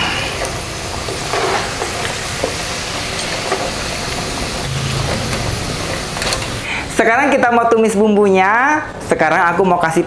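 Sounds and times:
hot oil sizzling: 0.0s - 7.0s.

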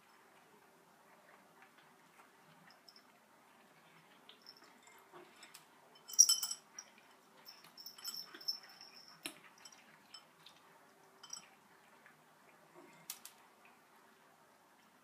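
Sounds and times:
kibble clinking on bowls: 4.4s - 10.4s, 11.2s - 11.6s.

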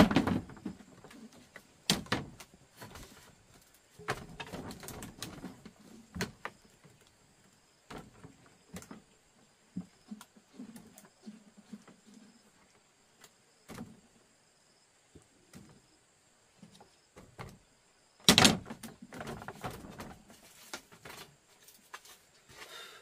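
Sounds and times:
rustling and scraping: 0.0s - 14.1s, 18.6s - 22.8s.

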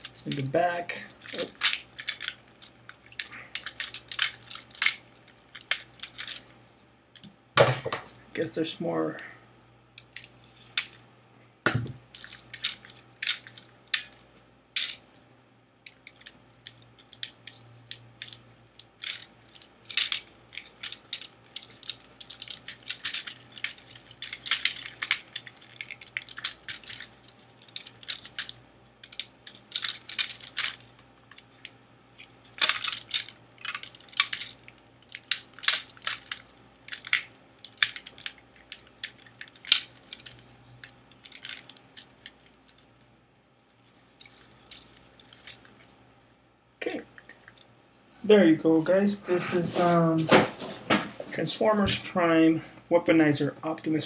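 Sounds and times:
plastic toy parts clicking: 1.2s - 6.4s, 15.9s - 42.8s.

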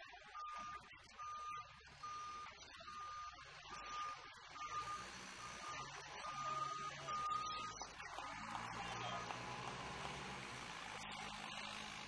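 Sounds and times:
forklift warning beeps: 0.4s - 9.4s.

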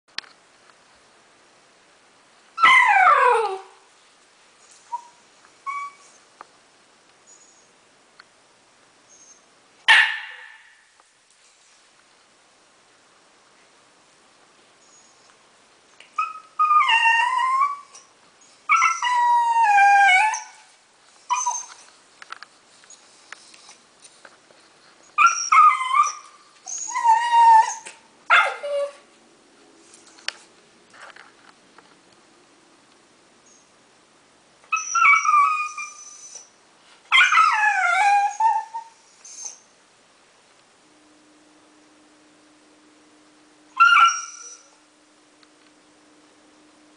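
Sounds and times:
dog whining: 2.6s - 3.8s, 4.9s - 6.2s, 16.2s - 18.1s, 18.7s - 20.6s, 21.3s - 21.8s, 25.1s - 29.1s, 34.7s - 36.5s, 37.1s - 39.7s, 43.8s - 44.8s.

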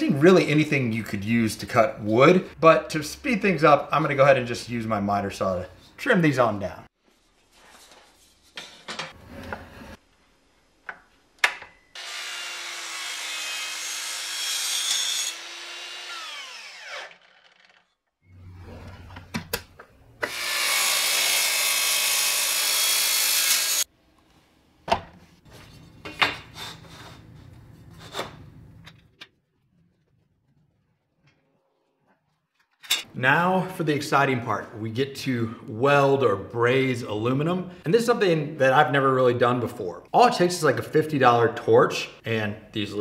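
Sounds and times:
miter saw cutting aluminum: 12.0s - 18.0s, 20.2s - 23.9s.

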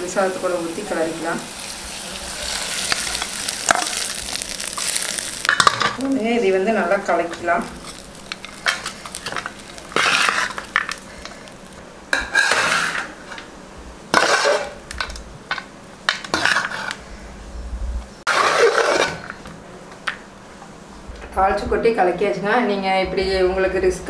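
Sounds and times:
metal ladle scraping a pot: 7.8s - 11.0s, 12.2s - 13.5s, 14.1s - 14.8s, 16.2s - 17.0s, 18.3s - 19.4s.

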